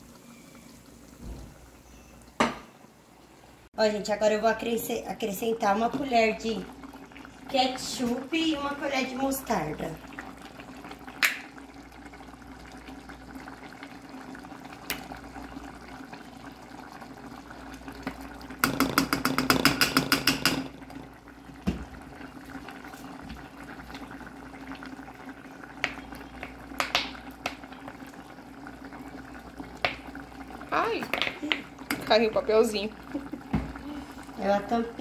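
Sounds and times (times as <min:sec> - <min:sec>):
liquid bubbling in a pan: 0:00.0 - 0:35.0.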